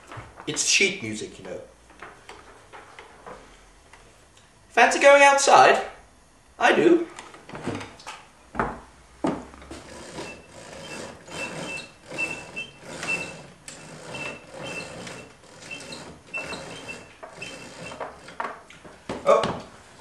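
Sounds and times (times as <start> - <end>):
short high squeak: 10.2 - 13.4, 14.1 - 18.0.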